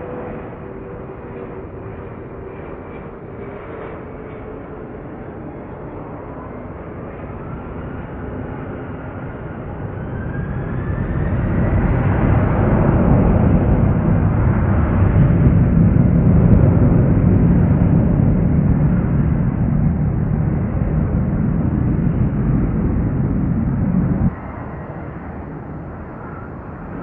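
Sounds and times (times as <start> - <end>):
jet engine rumble and whine: 0.0 - 27.0.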